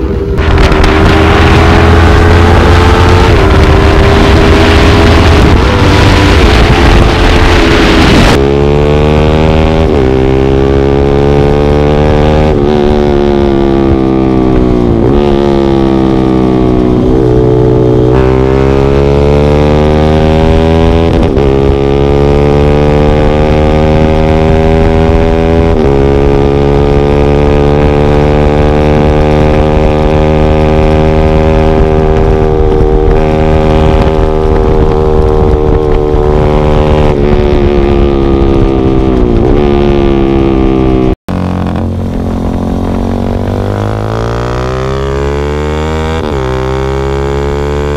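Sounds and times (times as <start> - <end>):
motorcycle engine at full throttle: 0.0 - 47.9.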